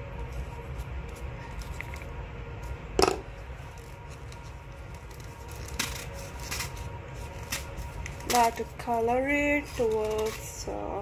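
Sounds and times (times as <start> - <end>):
low steady hum: 0.0 - 11.0
knock on tabletop: 3.0 - 3.2.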